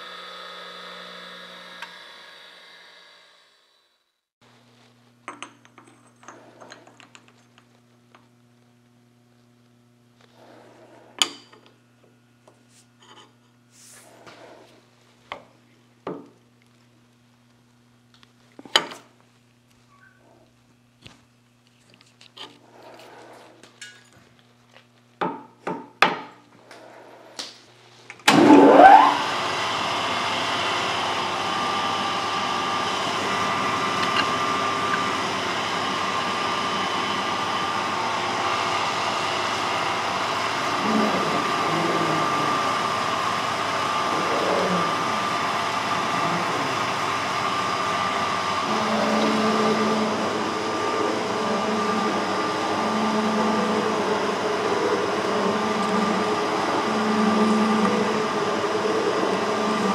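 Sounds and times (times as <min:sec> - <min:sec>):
electric motor whining drone: 0:00.0 - 0:03.6, 0:28.3 - 0:59.9.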